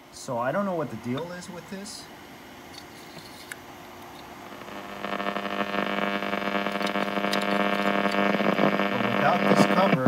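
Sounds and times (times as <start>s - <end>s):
radio speaker buzzing hum: 2.8s - 10.0s.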